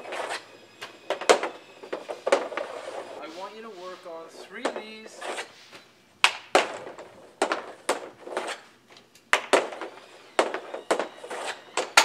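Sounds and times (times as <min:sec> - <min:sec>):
hockey stick hitting puck: 0:00.0 - 0:03.2, 0:04.6 - 0:05.5, 0:06.2 - 0:08.7, 0:09.3 - 0:12.0
puck striking the net: 0:00.0 - 0:03.2, 0:04.6 - 0:05.5, 0:06.2 - 0:08.7, 0:09.3 - 0:12.0.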